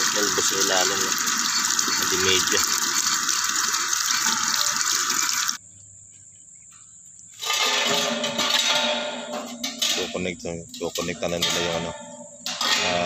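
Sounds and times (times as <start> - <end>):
water gushing: 0.0 - 5.6.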